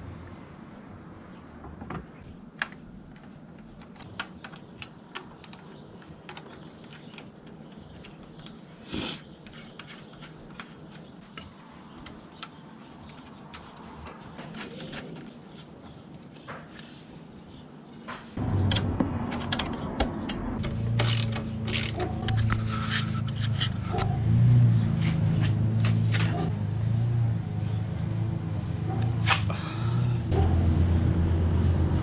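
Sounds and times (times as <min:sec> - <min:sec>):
metallic clicks of hand tools: 0:02.6 - 0:08.6.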